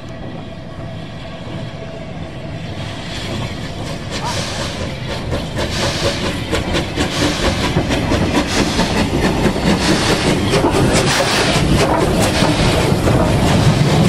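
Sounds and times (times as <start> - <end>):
steam locomotive exhaust: 0.1 - 14.0
train wheels clattering over rail joints: 3.1 - 14.0.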